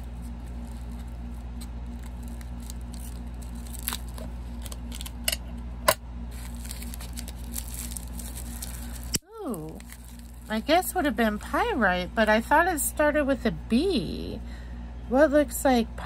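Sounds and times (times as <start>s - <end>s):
wrapping rustling: 0.0s - 5.2s, 6.3s - 11.6s
steady low hum: 0.0s - 16.0s.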